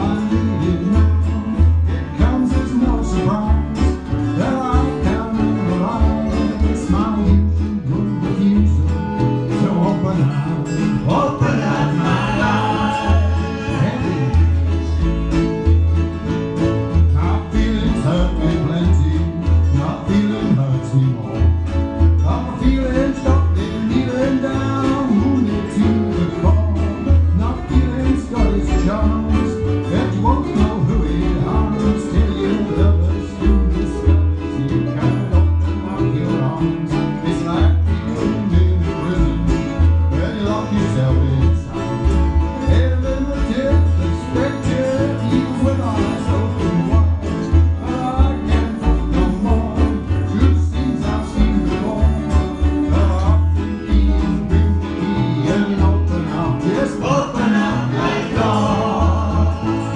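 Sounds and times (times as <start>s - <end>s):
person singing: 0.0s - 15.0s, 17.0s - 59.9s
live band playing: 0.0s - 59.9s
plucked strings: 0.0s - 59.9s
pulsing bass line: 0.0s - 59.9s.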